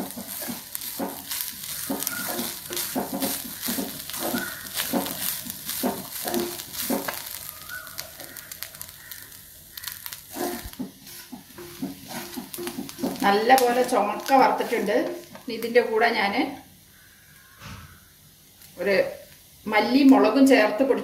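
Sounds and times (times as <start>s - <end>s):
wooden spatula scraping iron pan: 0.0s - 8.6s, 9.8s - 15.4s
light sizzle: 0.0s - 21.0s.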